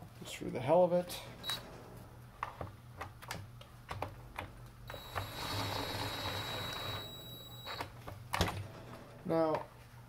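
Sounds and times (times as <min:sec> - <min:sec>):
cordless drill whining: 0:04.9 - 0:07.8.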